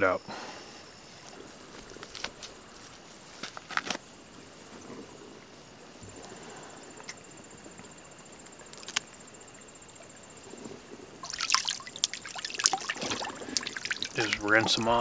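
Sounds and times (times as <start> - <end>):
water splashing and trickling: 11.2 - 15.0.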